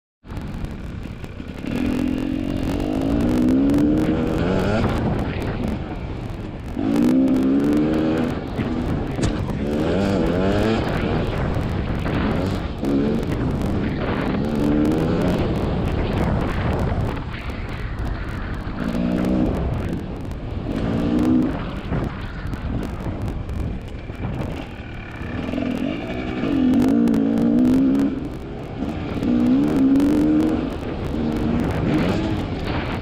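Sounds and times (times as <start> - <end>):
dirt bike engine revving: 1.0 - 33.0.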